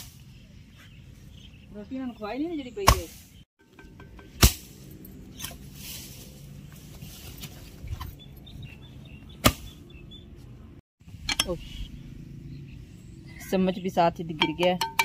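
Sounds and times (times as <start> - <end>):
hatchet chopping log: 2.8 - 3.2.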